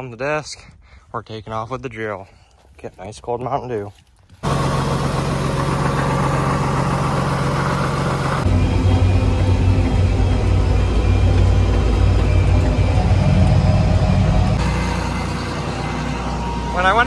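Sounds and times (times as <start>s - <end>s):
tractor diesel engine running: 4.4s - 17.0s.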